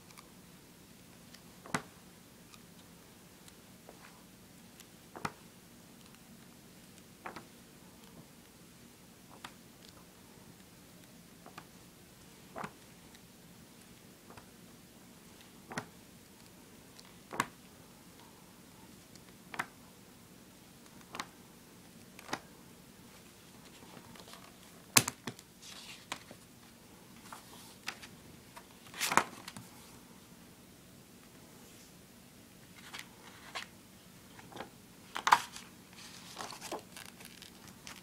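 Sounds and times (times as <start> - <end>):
book pages flipping: 12.5 - 12.9, 15.4 - 17.6, 20.9 - 21.3, 23.2 - 26.4, 27.2 - 29.9, 32.7 - 33.7, 34.3 - 38.0.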